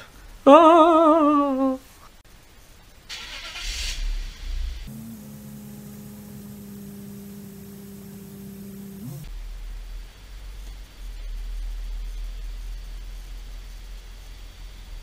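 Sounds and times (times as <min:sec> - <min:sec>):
car starter cranking: 0:03.1 - 0:04.0, 0:04.9 - 0:09.3
car engine idling: 0:04.9 - 0:09.3.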